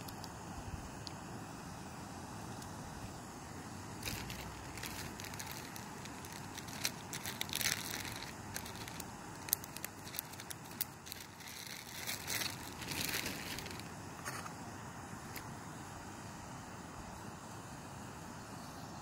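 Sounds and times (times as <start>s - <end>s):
crackles and sharp ticks: 0.0s - 0.4s, 1.0s - 1.2s, 2.5s - 2.8s, 4.0s - 13.9s
canister stove burning: 0.0s - 19.0s.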